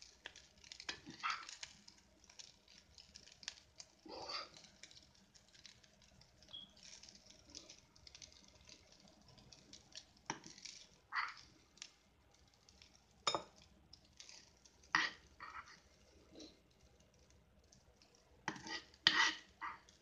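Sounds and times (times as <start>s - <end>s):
spoon scraping a pan: 0.2s - 5.0s, 10.0s - 11.5s, 14.2s - 16.6s, 18.4s - 20.0s.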